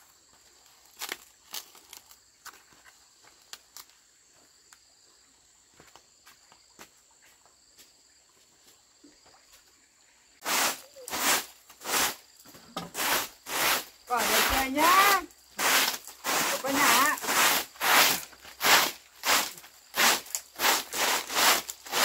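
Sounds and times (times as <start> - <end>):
insect trill: 0.0 - 22.0
broom sweeping earth floor: 10.4 - 22.0.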